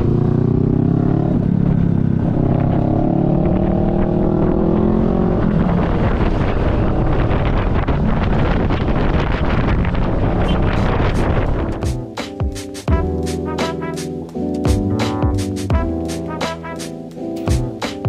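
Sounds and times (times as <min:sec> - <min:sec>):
scooter engine accelerating: 0:00.0 - 0:07.8
wind rushing over microphone: 0:00.0 - 0:12.2.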